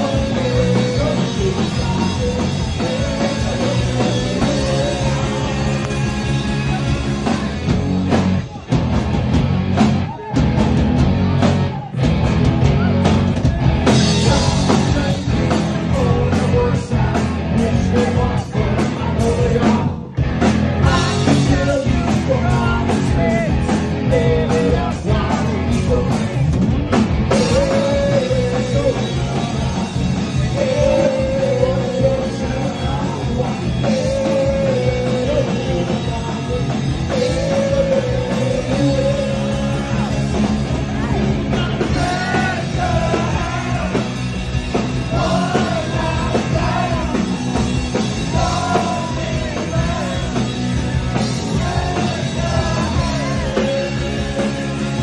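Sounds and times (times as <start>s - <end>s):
person singing: 0.0s - 7.6s, 27.3s - 44.2s, 44.8s - 50.8s, 51.4s - 55.0s
rock band playing: 0.0s - 55.0s.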